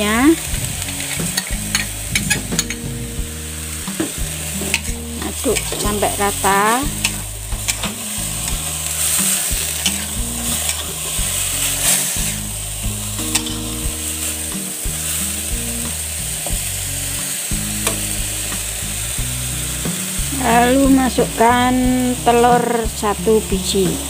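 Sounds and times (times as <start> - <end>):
vegetables sizzling in a wok: 0.0 - 24.0
metal spatula scraping a pan: 0.5 - 3.0, 4.0 - 12.5, 13.2 - 14.3.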